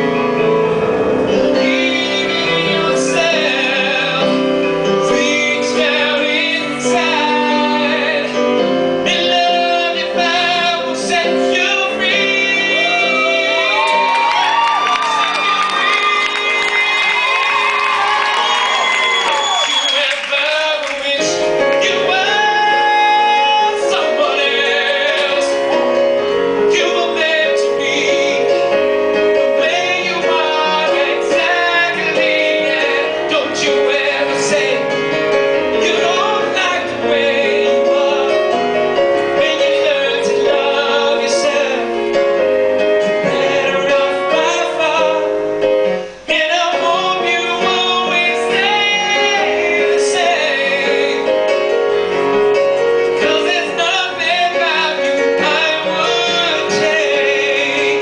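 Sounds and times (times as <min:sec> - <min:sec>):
man singing into microphone: 0:01.3 - 0:14.4, 0:19.2 - 0:51.8, 0:53.2 - 0:58.0
electric keyboard: 0:21.0 - 0:58.0.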